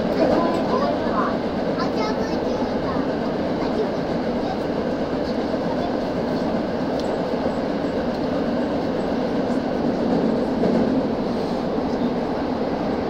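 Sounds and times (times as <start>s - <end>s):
subway train wheels rumbling on rails: 0.0s - 13.0s.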